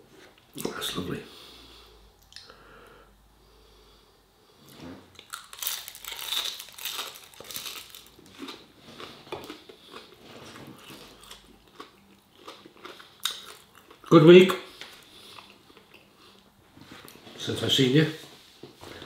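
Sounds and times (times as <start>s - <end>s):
crunching fried food: 5.1s - 16.1s
crackly chewing: 5.1s - 17.2s.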